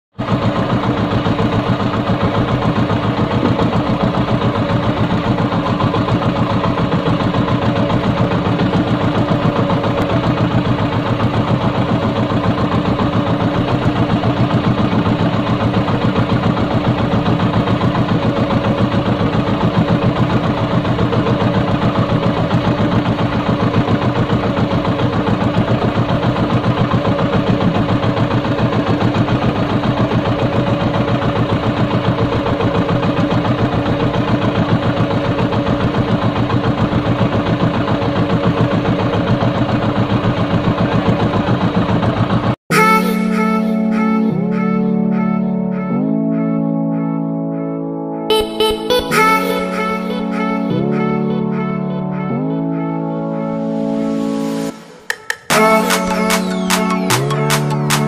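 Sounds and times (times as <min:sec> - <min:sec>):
boat engine chugging: 0:00.2 - 0:45.8.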